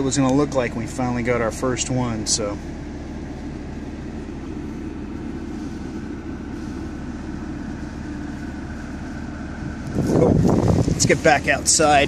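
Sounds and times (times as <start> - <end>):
car engine idling from inside: 0.0 - 12.0.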